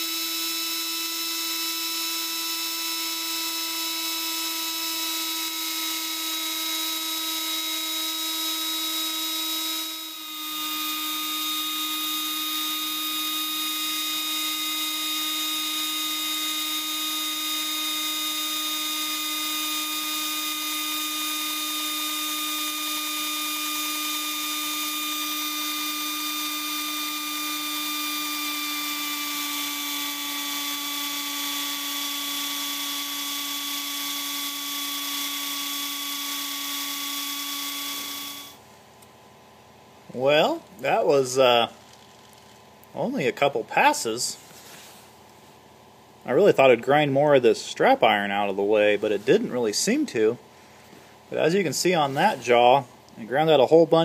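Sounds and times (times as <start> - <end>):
die grinder whining: 0.0 - 38.6.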